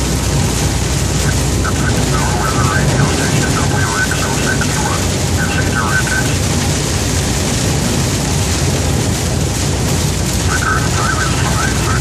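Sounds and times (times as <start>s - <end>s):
engine and road rumble: 0.0s - 12.0s
rain and tyre spray hiss: 0.0s - 12.0s.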